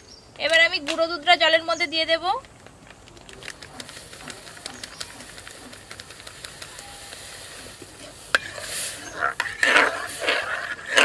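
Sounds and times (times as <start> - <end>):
metal spoon stirring liquid: 8.2 - 11.0.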